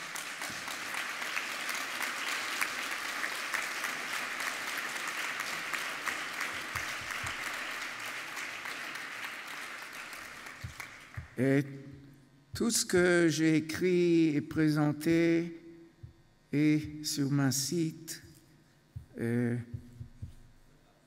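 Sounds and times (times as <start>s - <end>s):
audience applause: 0.0s - 11.4s.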